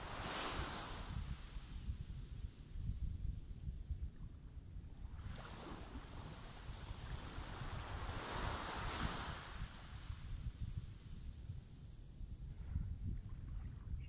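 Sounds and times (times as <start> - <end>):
wave washing up sandy beach: 0.0 - 1.7, 5.3 - 10.2
wind rumble on microphone: 0.0 - 14.0.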